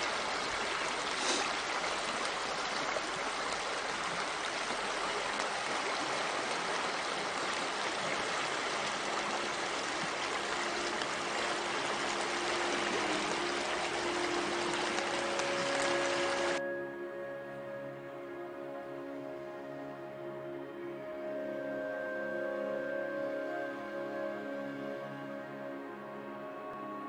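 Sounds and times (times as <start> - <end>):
river water rushing: 0.0 - 16.9
faint held musical tones: 8.4 - 27.0.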